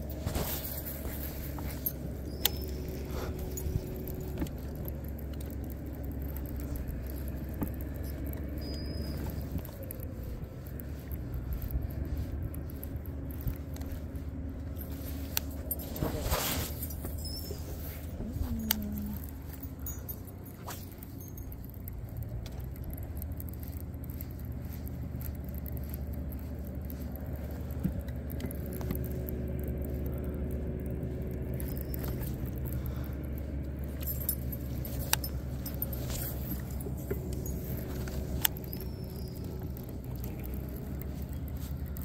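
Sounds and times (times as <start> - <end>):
boat motor running: 0.0 - 42.0
light rattling: 0.0 - 42.0
thin steady whine: 0.0 - 42.0
sharp clicks: 16.9 - 42.0.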